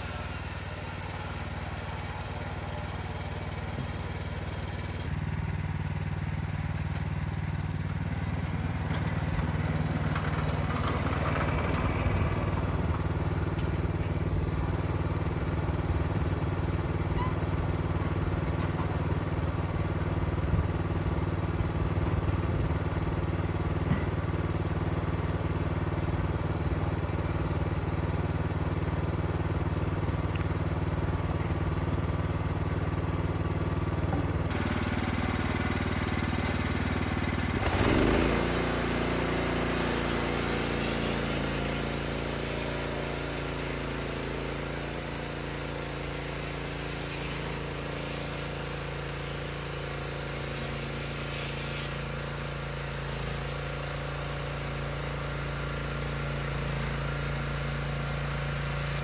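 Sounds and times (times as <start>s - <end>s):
sawmill engine running: 0.0s - 59.0s.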